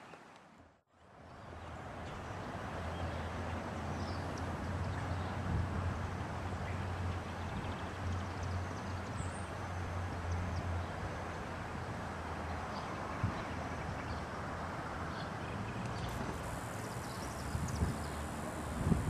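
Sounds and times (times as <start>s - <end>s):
birds chirping: 15.9s - 19.0s.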